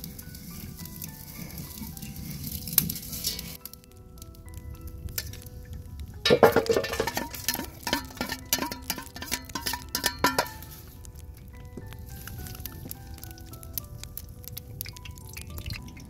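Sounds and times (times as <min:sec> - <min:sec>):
metal utensil knocking steel pan: 0:06.2 - 0:10.8.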